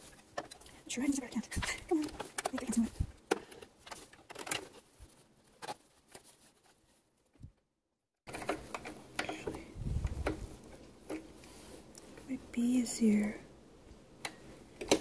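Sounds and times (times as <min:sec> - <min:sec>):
fabric and pins handling: 0:00.0 - 0:07.5.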